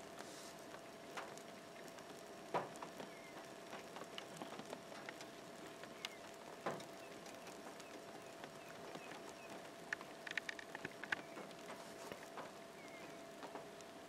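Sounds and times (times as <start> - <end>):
light rain hiss: 0.0 - 14.0
raindrops ticking: 0.0 - 14.0.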